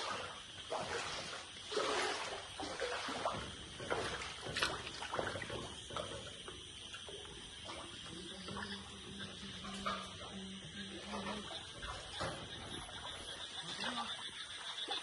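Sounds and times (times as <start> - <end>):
person wading through water: 0.0 - 15.0.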